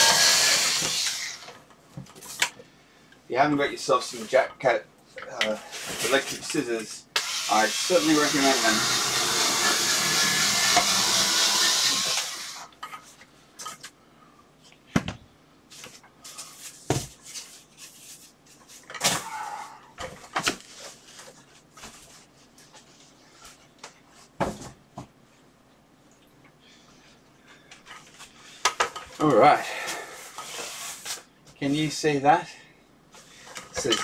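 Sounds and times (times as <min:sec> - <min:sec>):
electric scissors cutting cardboard: 0:00.0 - 0:01.6, 0:07.2 - 0:12.7.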